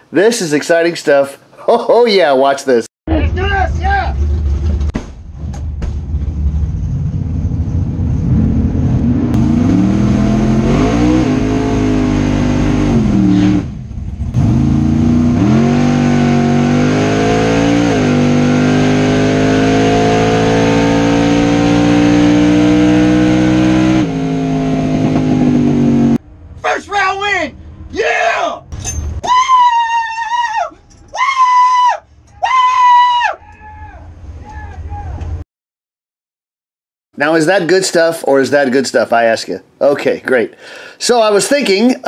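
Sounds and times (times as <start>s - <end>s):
drag race car engine: 3.1s - 28.0s.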